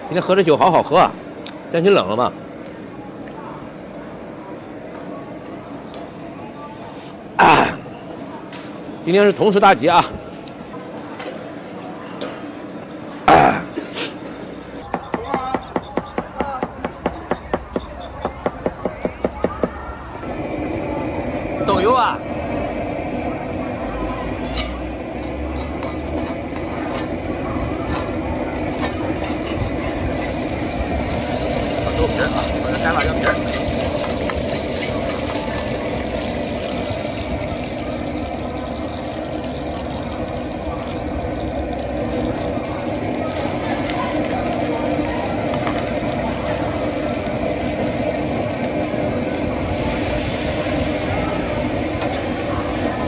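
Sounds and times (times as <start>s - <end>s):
food sizzling in a wok: 20.2s - 53.0s
steam hissing: 20.2s - 53.0s
ladle scraping in wok: 24.4s - 36.1s.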